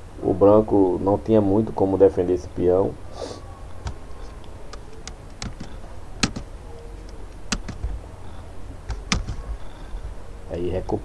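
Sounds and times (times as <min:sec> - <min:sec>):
low steady hum: 0:00.0 - 0:11.0
computer clicks: 0:03.8 - 0:08.0, 0:08.9 - 0:09.5.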